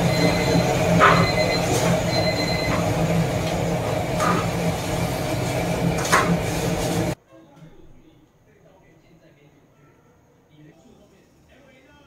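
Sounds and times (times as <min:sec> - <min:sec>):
gas burner roaring: 0:00.0 - 0:07.2.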